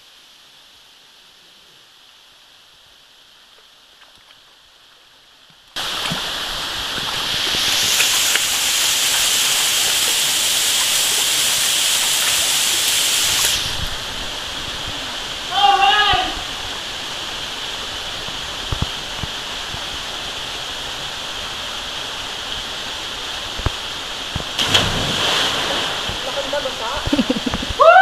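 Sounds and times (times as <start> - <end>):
waterfall rushing into pool: 5.8 - 28.0.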